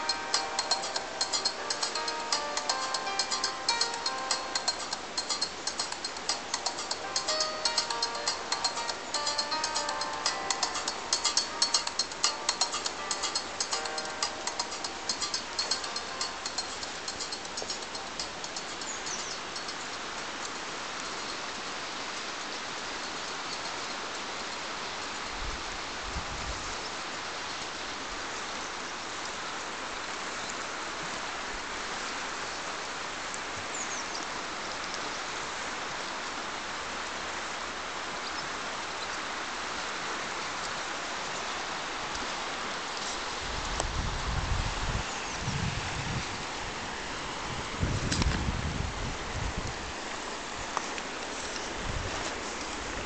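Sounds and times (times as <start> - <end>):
river rushing over gravel: 0.0 - 23.3, 45.9 - 53.0.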